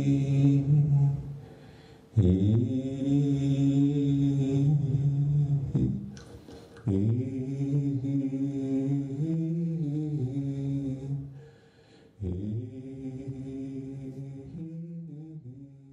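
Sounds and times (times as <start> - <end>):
man singing long low notes: 0.0 - 1.4, 2.2 - 6.2, 6.8 - 11.4, 12.2 - 15.9
man breathing in: 1.4 - 2.1, 11.3 - 12.2.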